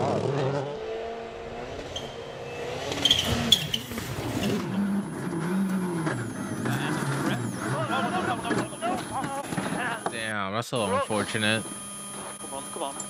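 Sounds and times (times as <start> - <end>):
rally car engine: 0.0 - 10.3.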